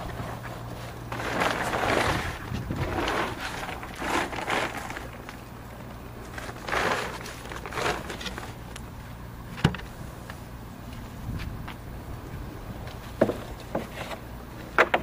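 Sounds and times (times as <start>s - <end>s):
plastic tarpaulin rustling: 0.0s - 5.6s, 6.2s - 8.8s.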